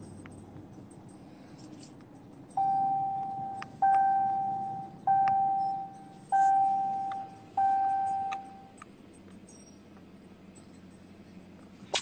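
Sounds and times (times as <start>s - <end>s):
car warning chime: 2.5s - 8.8s.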